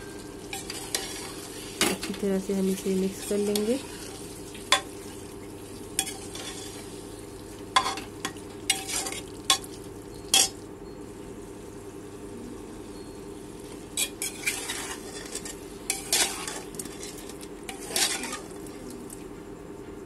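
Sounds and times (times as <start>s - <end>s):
food sizzling: 0.0s - 19.2s
spatula scraping and clinking on pot: 0.5s - 1.5s, 6.0s - 6.8s, 7.8s - 9.7s, 14.0s - 18.6s.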